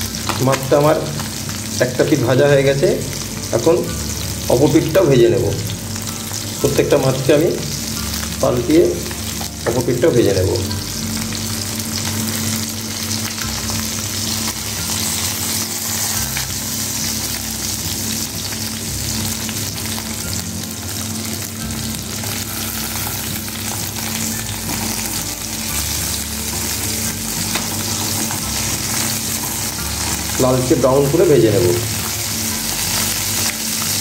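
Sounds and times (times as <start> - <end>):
fish sizzling in hot oil: 0.0 - 34.0
spatula turning fish: 10.9 - 20.2, 21.3 - 34.0.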